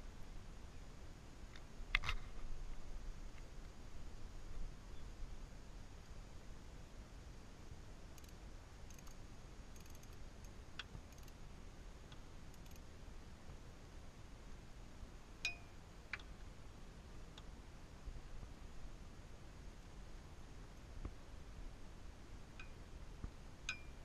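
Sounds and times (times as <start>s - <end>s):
ratchet ticks: 8.2s - 9.2s, 9.8s - 11.4s, 12.5s - 12.9s
sharp metal clicks: 9.8s - 11.4s.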